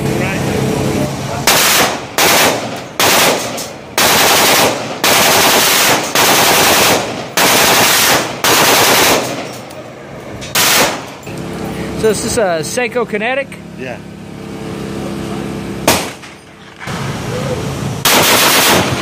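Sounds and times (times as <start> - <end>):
automatic weapon bursts with echo: 1.5 - 9.5, 10.6 - 11.1, 18.0 - 19.0.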